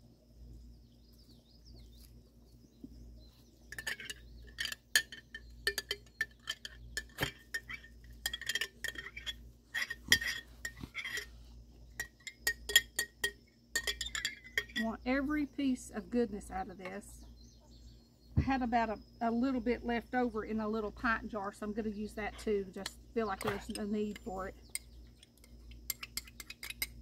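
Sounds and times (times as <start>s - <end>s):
glass jar clinking: 3.7s - 11.4s, 12.0s - 14.9s, 22.8s - 27.0s.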